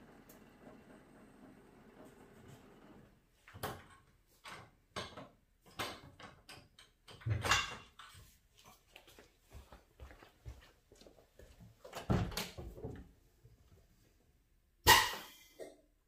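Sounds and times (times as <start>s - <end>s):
tools knocking and clunking: 3.4s - 8.3s.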